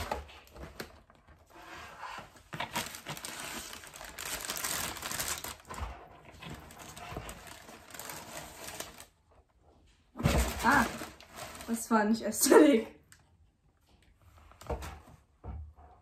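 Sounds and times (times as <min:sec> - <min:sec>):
packaging crinkling rustle: 0:02.2 - 0:09.2, 0:10.2 - 0:12.0
packaging tearing: 0:02.6 - 0:05.8, 0:06.5 - 0:09.1.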